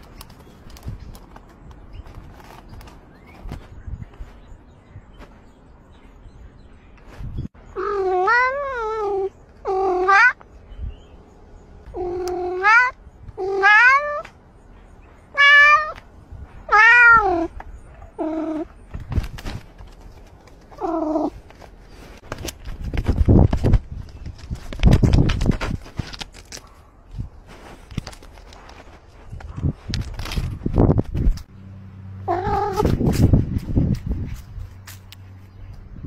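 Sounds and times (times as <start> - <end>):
scratchy rustling: 0.0 - 3.7, 19.0 - 31.5
cat meowing: 7.8 - 10.4, 11.9 - 14.3, 15.4 - 16.0, 16.7 - 17.5.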